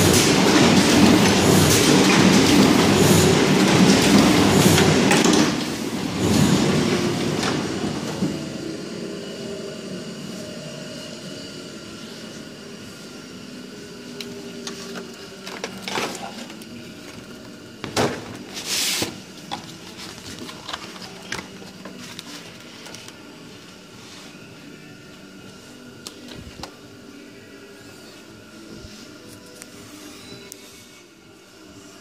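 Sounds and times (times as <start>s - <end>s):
die-cutting press running: 0.0s - 8.4s.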